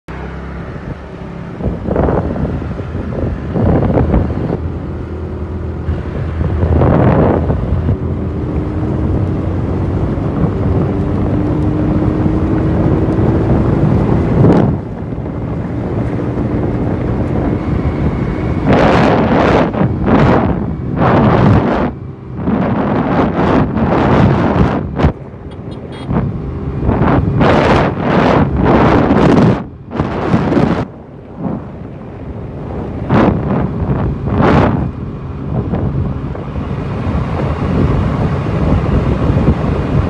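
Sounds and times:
scooter engine accelerating: 0.1s - 30.8s
wind buffeting microphone: 0.1s - 40.0s.

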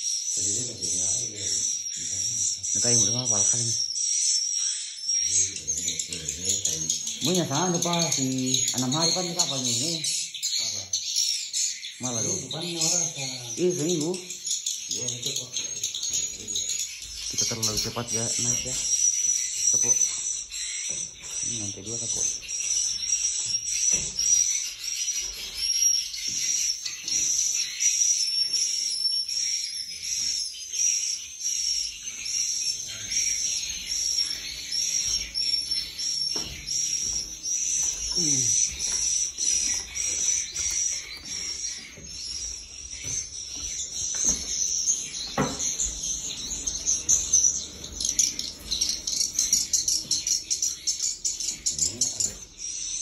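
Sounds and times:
swiftlets twittering: 0.0s - 53.0s
knocks: 45.3s - 45.9s.

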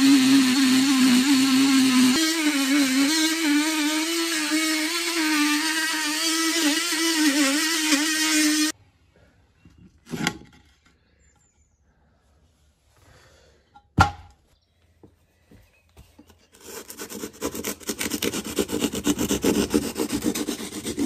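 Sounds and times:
oscillating multi-tool buzzing: 0.0s - 8.8s.

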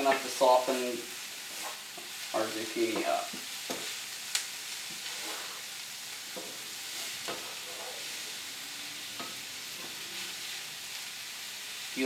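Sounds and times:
wooden spoon scraping a pan: 0.0s - 4.0s, 4.8s - 8.4s
vegetables sizzling in a skillet: 0.0s - 12.0s.

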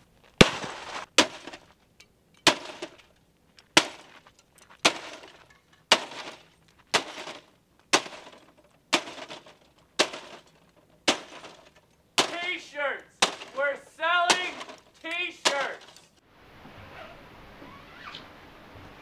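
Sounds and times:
bat smashing plastic device: 0.4s - 1.7s, 2.5s - 3.1s, 3.7s - 4.2s, 4.8s - 16.2s
breaking plastic clattering: 0.4s - 1.8s, 2.4s - 16.2s.

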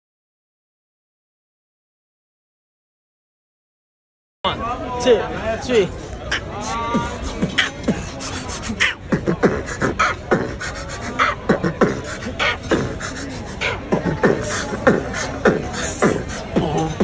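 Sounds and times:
man beatboxing: 5.8s - 17.0s.

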